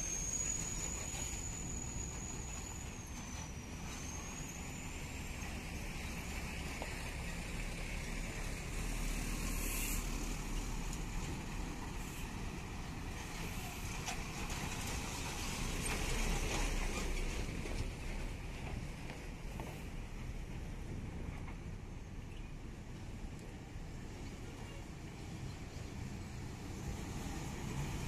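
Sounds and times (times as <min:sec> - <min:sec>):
trucks engine and tyre rumble: 0:00.0 - 0:28.0
brief hiss: 0:09.3 - 0:10.2.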